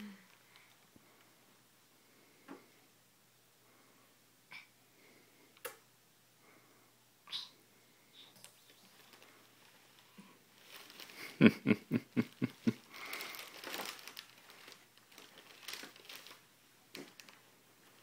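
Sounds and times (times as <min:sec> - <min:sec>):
tissue paper crinkling: 0:08.8 - 0:11.4, 0:12.3 - 0:18.0.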